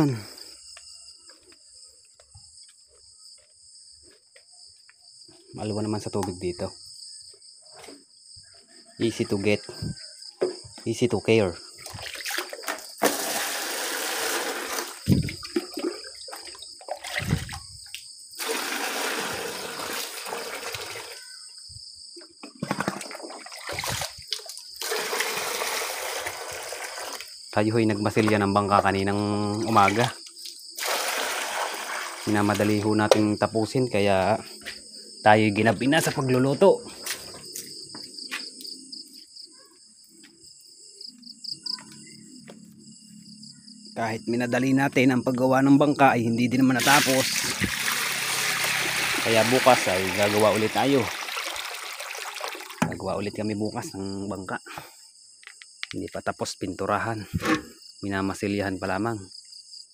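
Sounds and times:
crickets chirping: 0.0 - 59.9
water pouring into buckets: 11.8 - 17.7, 18.4 - 21.3, 22.6 - 27.3, 29.4 - 33.0, 46.7 - 53.2.

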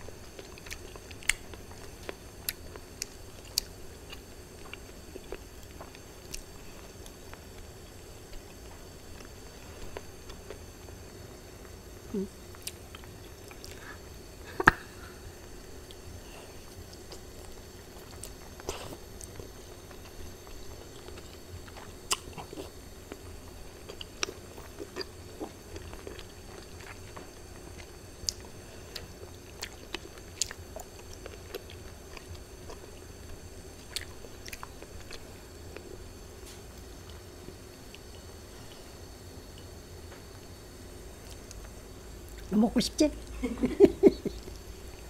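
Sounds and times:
faint steady hum: 0.0 - 45.0
close chewing with mouth smacks: 0.1 - 10.6, 16.6 - 36.0.

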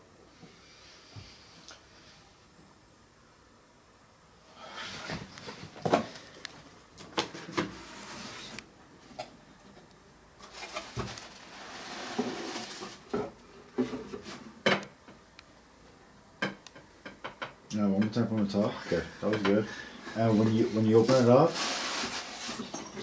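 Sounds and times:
cardboard rustling and scraping: 7.2 - 8.6, 10.4 - 14.5, 20.1 - 23.0.

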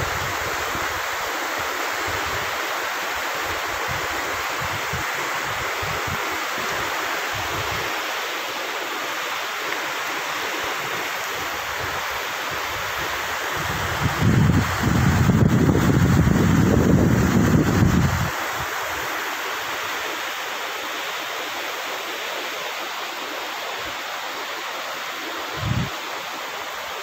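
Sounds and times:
river rapids rushing: 0.0 - 27.0
wind buffeting microphone: 11.6 - 19.0, 25.5 - 26.0.

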